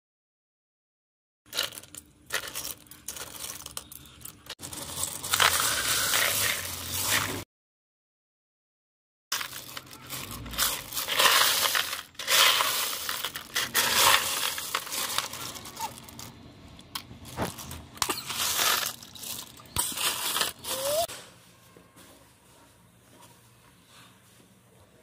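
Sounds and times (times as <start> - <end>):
clam shells clattering: 1.5 - 7.4, 9.4 - 21.1.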